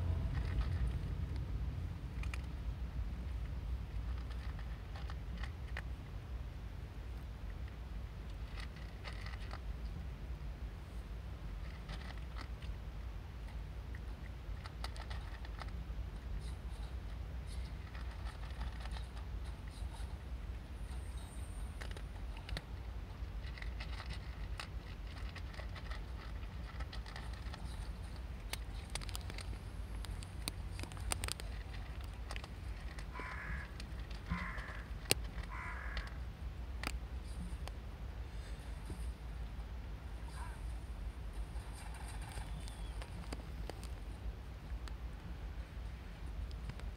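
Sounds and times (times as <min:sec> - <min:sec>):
cat crunching dry kibble: 0:00.0 - 0:46.9
steady low rumble: 0:00.0 - 0:46.9
bird cawing: 0:33.1 - 0:36.2.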